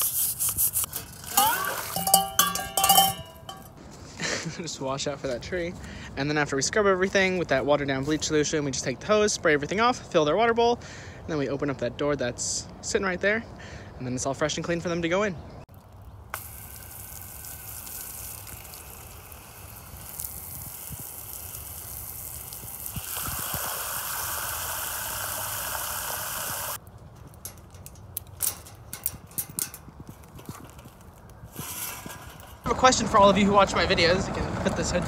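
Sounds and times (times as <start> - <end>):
hose nozzle spraying water: 16.3 - 26.8.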